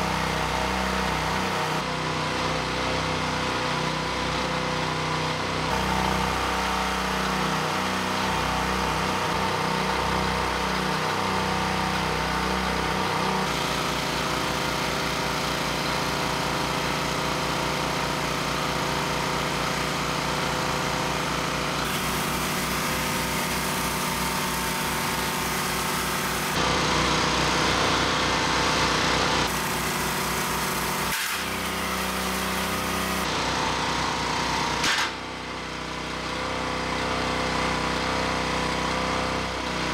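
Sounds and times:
small gas engine running: 0:00.0 - 0:39.9.

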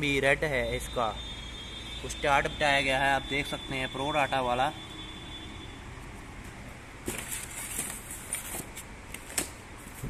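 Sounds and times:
cardboard and packing rustling: 0:07.0 - 0:10.0.

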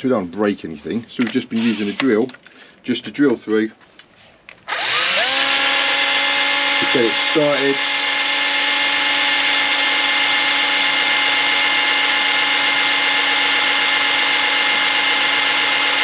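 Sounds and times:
electric drill whining: 0:01.6 - 0:02.1, 0:04.6 - 0:16.0.

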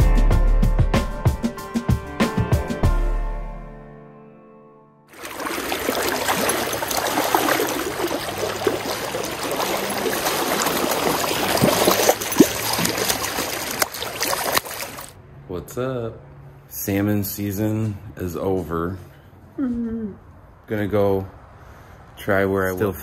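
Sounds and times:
fish splashing at surface: 0:05.1 - 0:15.2
stream water rushing and gurgling: 0:05.1 - 0:15.2.

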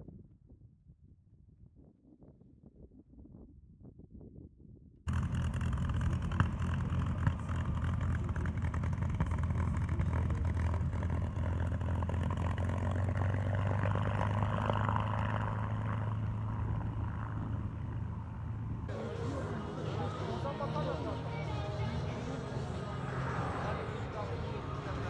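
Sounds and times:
aircraft engine droning: 0:05.1 - 0:25.0.

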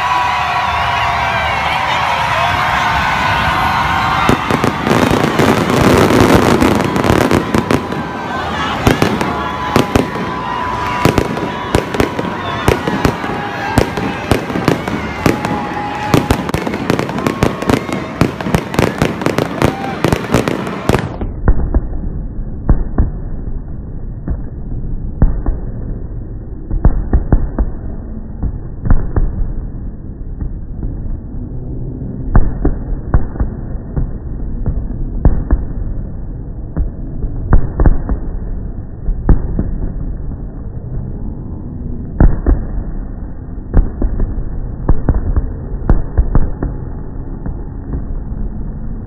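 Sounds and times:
fireworks bangs: 0:00.0 - 0:22.0
low rumble: 0:00.0 - 0:49.0.

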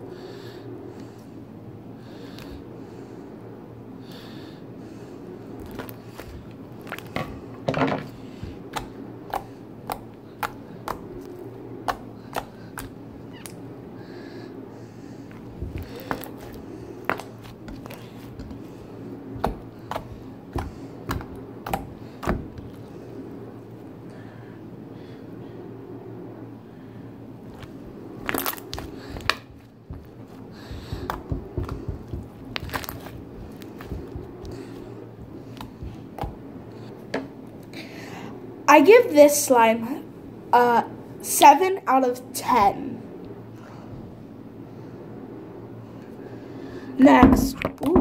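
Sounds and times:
slime squishing: 0:05.6 - 0:07.5, 0:08.1 - 0:13.6, 0:15.3 - 0:23.0, 0:27.4 - 0:36.9
slime popping and crackling: 0:27.6 - 0:34.7.

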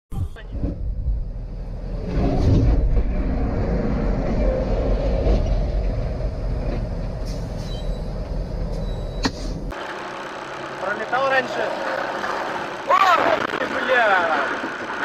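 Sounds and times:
low rumble: 0:00.1 - 0:09.7.

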